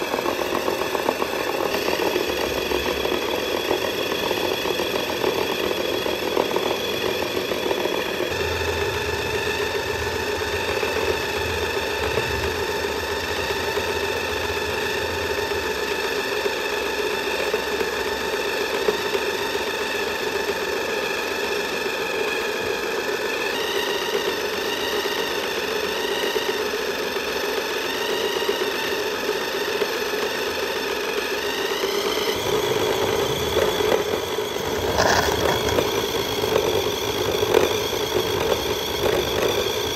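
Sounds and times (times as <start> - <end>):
toy car electric motor whining: 0.0 - 39.9.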